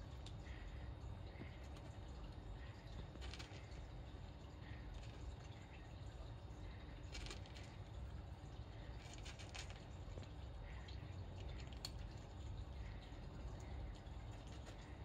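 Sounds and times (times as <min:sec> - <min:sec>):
low steady rumble: 0:00.0 - 0:15.0
cat crunching dry kibble: 0:03.1 - 0:03.9, 0:07.0 - 0:07.8, 0:09.0 - 0:10.3.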